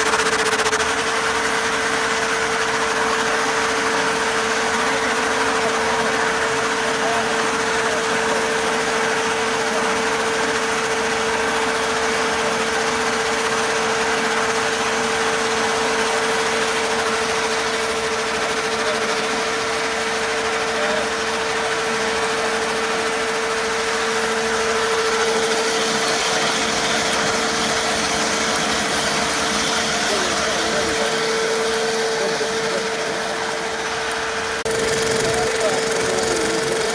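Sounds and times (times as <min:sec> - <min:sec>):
chainsaw cutting stone: 0:34.6 - 0:36.9.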